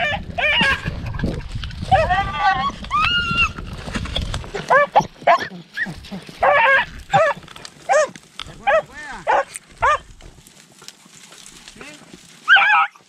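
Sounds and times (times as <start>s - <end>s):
beagles baying: 4.6s - 10.1s, 12.5s - 13.0s.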